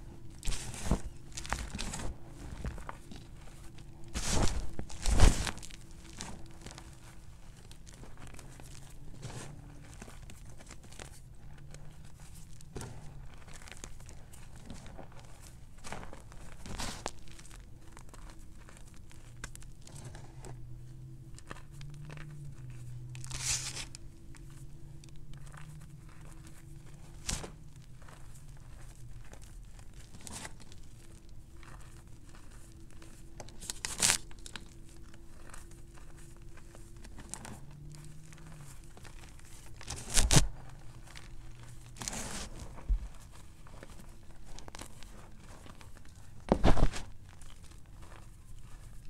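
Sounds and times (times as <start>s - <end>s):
faint low hum: 0.0s - 49.0s
hands crumbling chalk powder: 0.0s - 49.0s.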